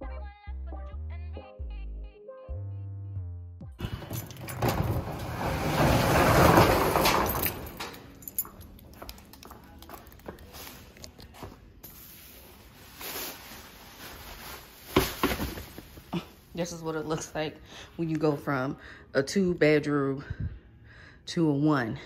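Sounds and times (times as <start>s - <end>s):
metal roll-up door rolling up: 3.8s - 8.2s.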